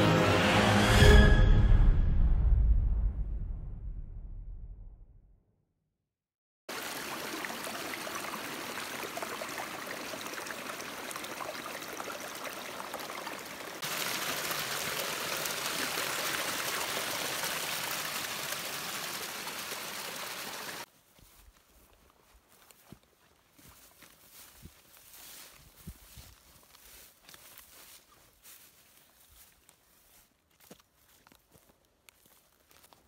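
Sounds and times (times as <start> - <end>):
stream trickling: 6.7 - 22.0.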